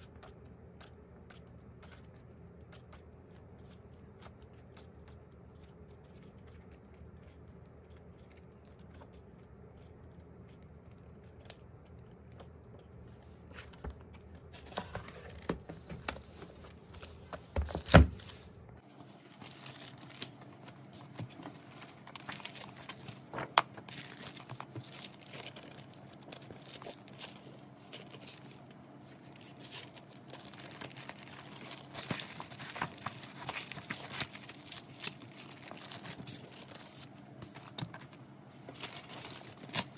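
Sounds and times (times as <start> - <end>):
faint hum: 0.0 - 39.9
paper and plastic wrapping rustling: 13.5 - 39.9.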